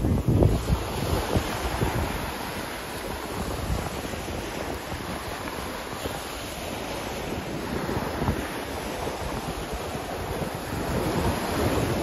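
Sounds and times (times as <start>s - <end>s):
ocean surf breaking on beach: 0.0s - 12.0s
wind buffeting microphone: 0.0s - 12.0s.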